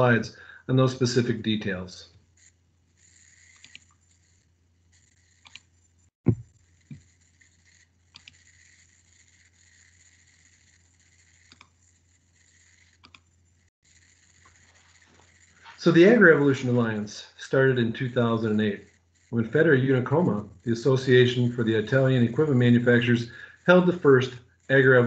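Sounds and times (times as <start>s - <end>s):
microphone and room hum: 6.2s - 7.2s, 14.0s - 25.0s.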